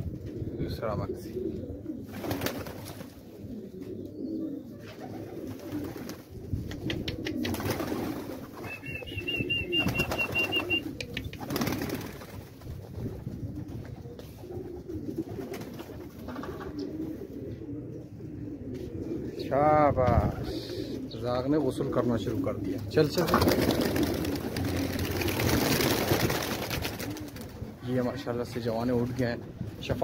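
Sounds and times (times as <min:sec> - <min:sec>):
pigeons cooing: 0:00.0 - 0:30.0
wing flaps: 0:02.1 - 0:03.2, 0:04.9 - 0:16.8, 0:23.1 - 0:27.6.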